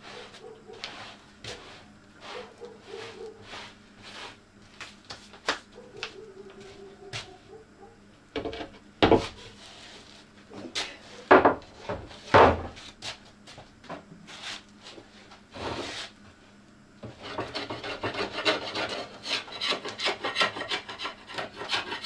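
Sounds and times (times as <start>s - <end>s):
loud thuds on wooden workbench: 11.3s - 12.8s.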